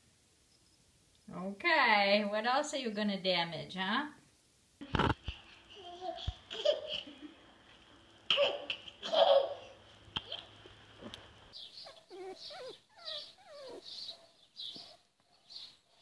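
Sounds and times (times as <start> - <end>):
puppy and kitten squealing: 11.7 - 14.2.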